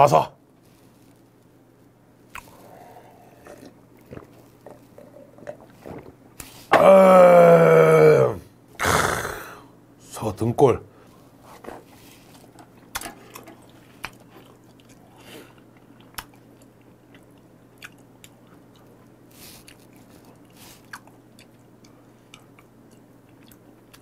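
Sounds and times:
steady low hum: 0.0s - 24.0s
wet mouth chewing clicks: 2.3s - 2.7s, 15.7s - 24.0s.

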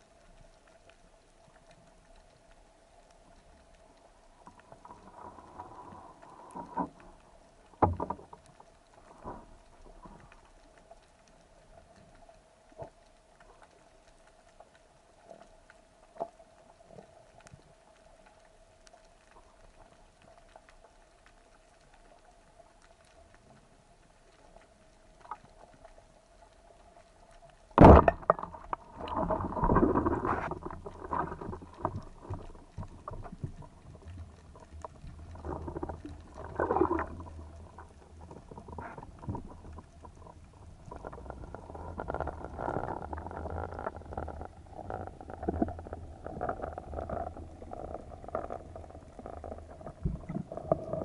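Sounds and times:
faint underwater hum: 0.0s - 51.0s
clicks and knocks: 27.8s - 32.4s.

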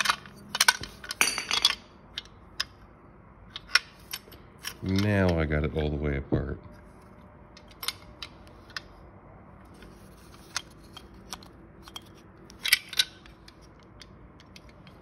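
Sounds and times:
plastic parts clicking and clacking: 0.0s - 2.8s, 9.7s - 15.0s.

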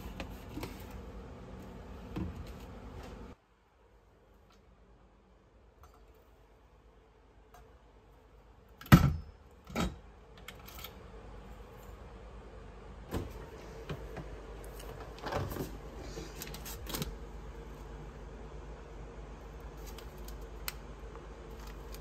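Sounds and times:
fridge door opening: 14.9s - 17.2s.

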